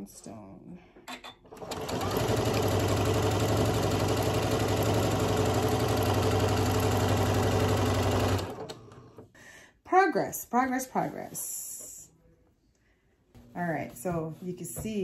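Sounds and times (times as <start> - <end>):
sewing machine stitching: 1.2 - 9.2.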